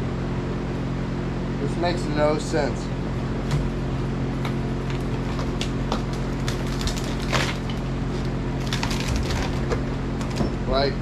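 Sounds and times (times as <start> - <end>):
fan humming: 0.0 - 11.0
wood cracking and tearing: 4.8 - 10.4.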